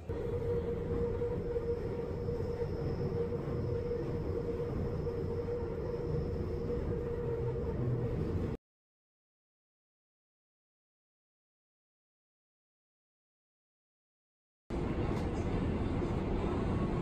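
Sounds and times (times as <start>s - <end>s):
steady hum: 0.0s - 8.6s
subway train wheels rumbling: 0.0s - 8.6s, 14.7s - 17.0s.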